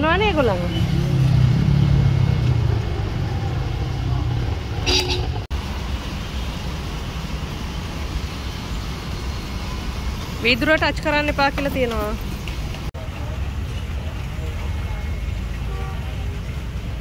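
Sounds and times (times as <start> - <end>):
traffic noise: 0.0 - 17.0
short horn toot: 4.8 - 5.4.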